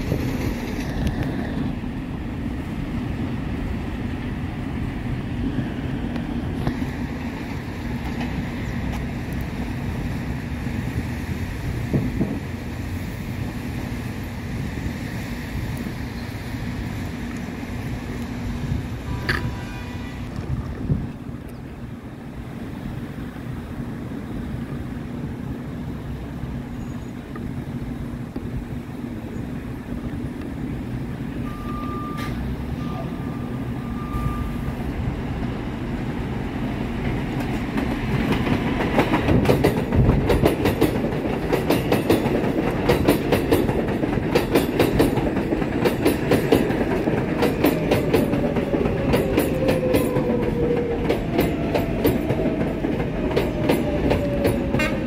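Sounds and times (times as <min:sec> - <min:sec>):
wheels clacking over rail joints: 0:00.0 - 0:02.0, 0:06.1 - 0:09.8, 0:35.3 - 0:55.0
subway train rumbling past: 0:00.0 - 0:55.0.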